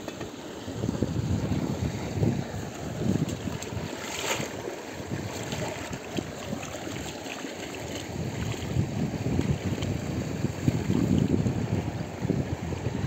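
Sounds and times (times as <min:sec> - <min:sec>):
water running in a ditch: 0:00.0 - 0:13.0
wind buffeting microphone: 0:00.8 - 0:13.0
splashing of plant washed by hand: 0:02.8 - 0:11.3.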